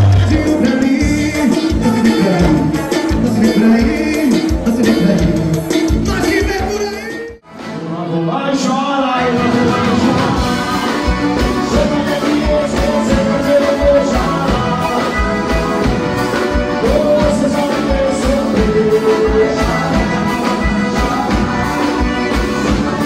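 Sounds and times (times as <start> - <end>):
steady bass drum beat: 0.0 - 7.4, 9.4 - 23.0
accordion melody: 0.0 - 23.0
man singing: 0.0 - 23.0.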